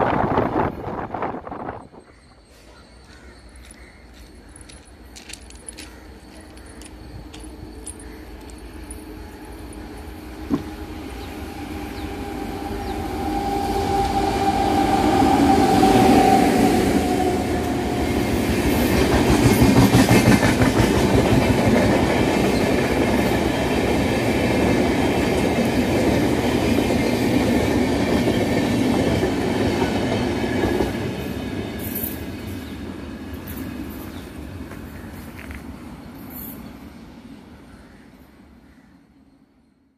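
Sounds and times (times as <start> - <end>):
electric locomotive passing: 0.0 - 39.7
train wheels clickety-clack on rails: 2.6 - 10.8, 12.8 - 36.6.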